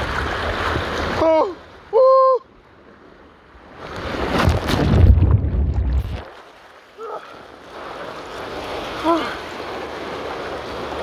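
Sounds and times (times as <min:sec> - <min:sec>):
water churning: 0:00.0 - 0:02.3, 0:03.6 - 0:11.0
water rushing: 0:00.0 - 0:11.0
big splash: 0:03.8 - 0:06.7.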